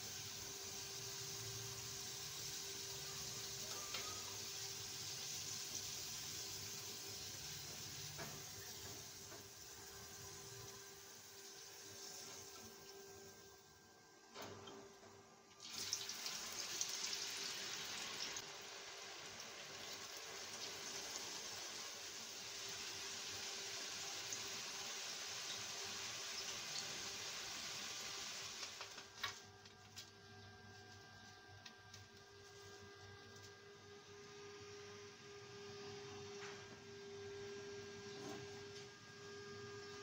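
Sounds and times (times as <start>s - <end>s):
fries sizzling in hot oil: 0.0s - 14.0s, 15.5s - 29.3s.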